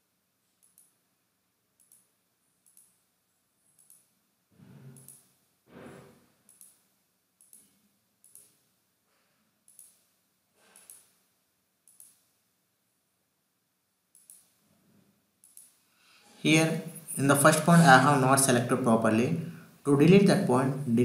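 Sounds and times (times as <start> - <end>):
computer mouse clicks: 0.6 - 1.0, 1.8 - 3.0, 3.6 - 4.2, 4.9 - 5.4, 6.4 - 8.7, 9.6 - 11.2, 11.8 - 12.4, 14.1 - 14.6, 15.4 - 15.8.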